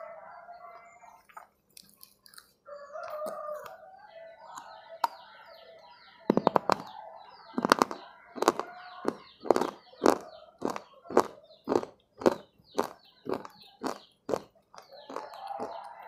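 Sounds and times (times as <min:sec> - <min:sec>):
birds calling and chirping: 0:00.0 - 0:16.0
crunching bites and chewing: 0:01.3 - 0:03.8, 0:07.6 - 0:16.0.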